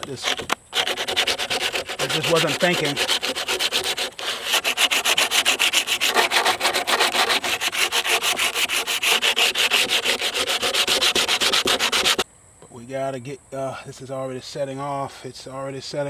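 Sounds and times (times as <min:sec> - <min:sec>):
sandpaper rubbing on wood: 0:00.0 - 0:12.2.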